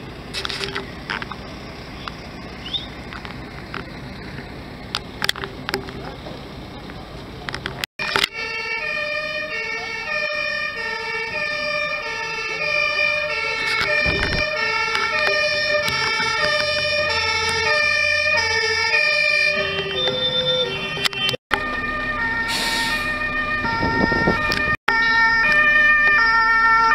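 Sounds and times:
two-tone fire engine siren: 0:08.0 - 0:26.9.

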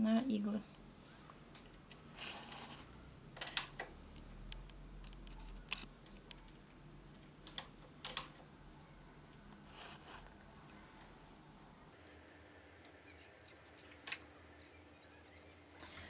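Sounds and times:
yarn rustling: 0:09.6 - 0:11.4.

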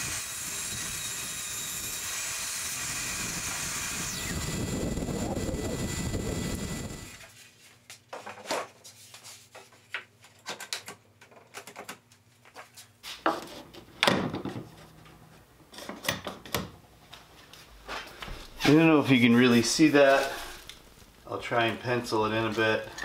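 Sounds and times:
wood scraping on wood: 0:17.9 - 0:20.8.

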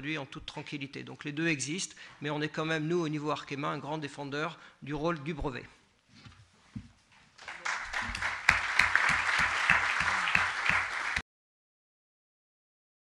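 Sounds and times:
audience applauding: 0:07.4 - 0:11.2.

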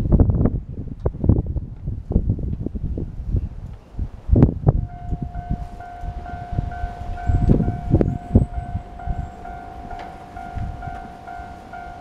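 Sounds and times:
wind noise gusts: 0:00.0 - 0:12.0
level crossing warning bell: 0:04.8 - 0:12.0.

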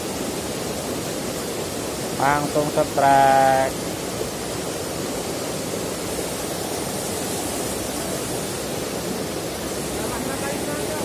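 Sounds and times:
river rushing over rocks: 0:00.0 - 0:11.0.

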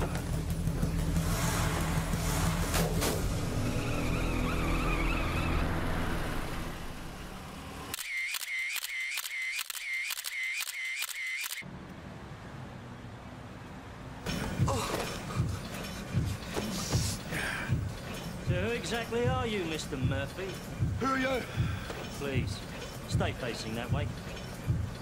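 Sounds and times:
vehicle engine rumble: 0:00.0 - 0:08.0
camera shutter clicks: 0:07.9 - 0:11.6.

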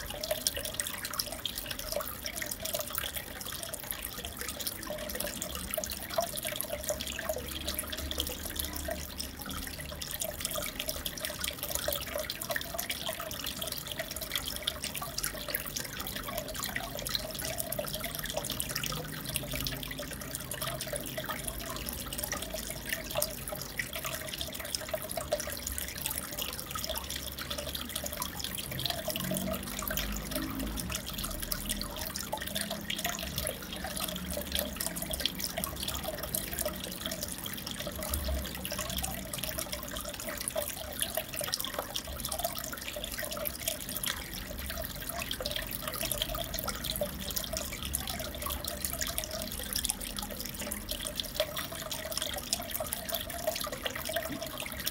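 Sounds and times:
aquarium water trickling and bubbling: 0:00.0 - 0:54.9.

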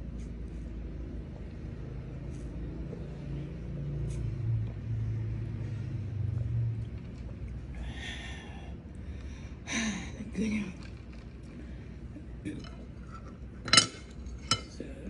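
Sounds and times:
low rumbling hum: 0:00.0 - 0:15.0.

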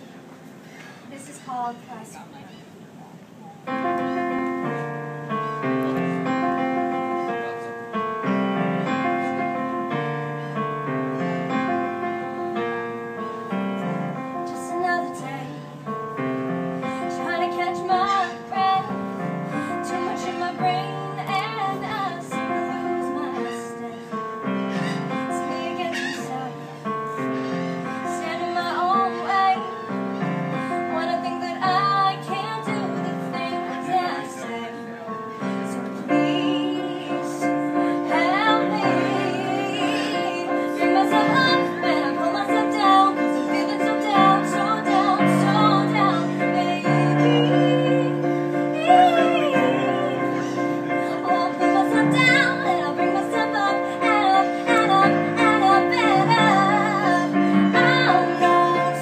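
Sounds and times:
keyboard chords: 0:03.6 - 0:59.0
woman singing: 0:11.5 - 0:16.2, 0:16.8 - 0:59.0.

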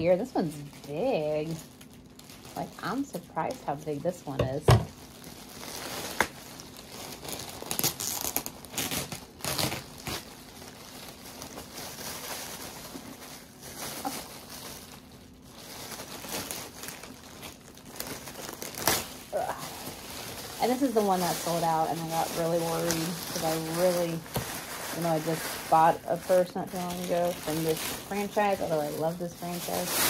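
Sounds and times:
packaging crinkling: 0:00.0 - 0:30.0.

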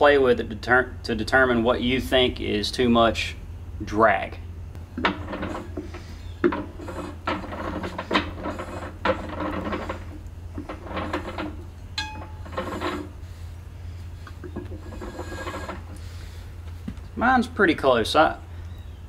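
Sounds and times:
brake shoes scratchy rubbing: 0:12.4 - 0:17.1.

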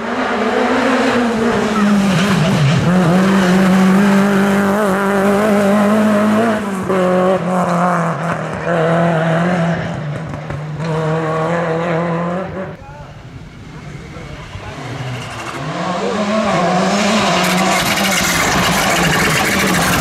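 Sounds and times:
rally car engine at high revs: 0:00.0 - 0:12.8, 0:13.6 - 0:20.0.

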